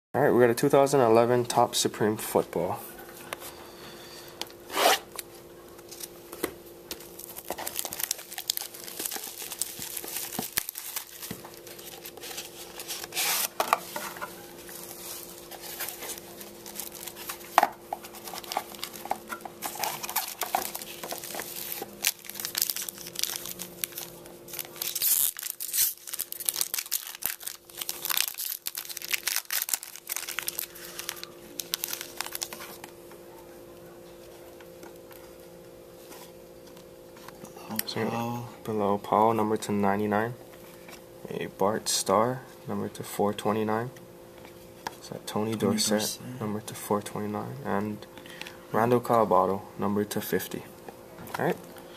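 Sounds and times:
foil pack crinkling and tearing: 0:06.9 - 0:13.7, 0:14.4 - 0:32.9.

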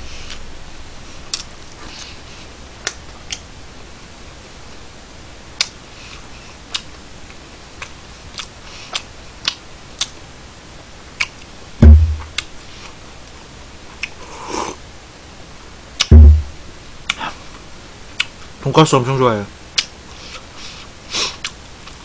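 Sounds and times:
mouth chewing clicks and smacks: 0:05.6 - 0:05.8, 0:06.7 - 0:07.0, 0:07.8 - 0:10.2, 0:11.2 - 0:11.5, 0:14.0 - 0:14.2, 0:18.2 - 0:18.4, 0:19.8 - 0:20.5, 0:21.4 - 0:22.0
heavy low thump: 0:11.8 - 0:12.4, 0:16.1 - 0:16.6.

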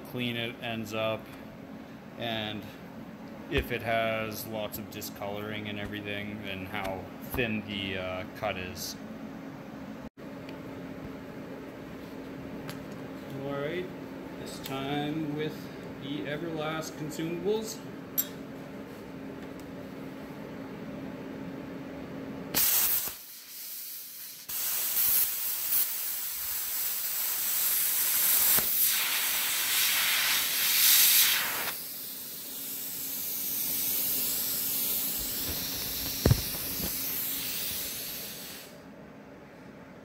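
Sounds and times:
cooling air hissing: 0:22.5 - 0:38.9
plasma cutter hissing: 0:22.6 - 0:38.8
sharp knock: 0:36.2 - 0:36.6.

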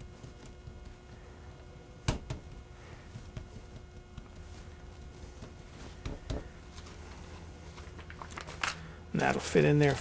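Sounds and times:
hands patting dough on wood: 0:00.0 - 0:07.2
faint handling sounds: 0:02.5 - 0:10.0.

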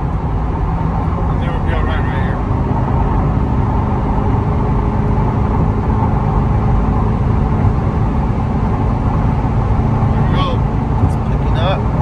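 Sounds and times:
car engine drone: 0:00.0 - 0:12.0
road noise: 0:00.0 - 0:12.0
wind noise: 0:00.0 - 0:12.0.

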